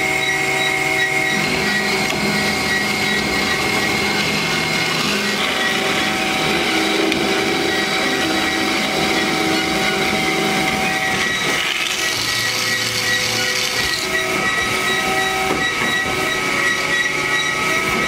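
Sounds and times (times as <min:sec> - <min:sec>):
band saw running: 0:00.0 - 0:18.0.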